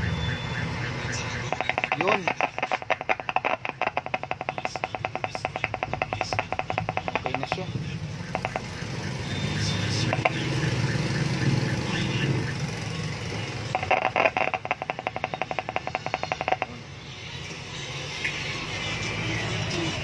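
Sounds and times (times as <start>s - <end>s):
loudspeaker crackling clicks: 1.5s - 8.8s, 13.7s - 16.7s.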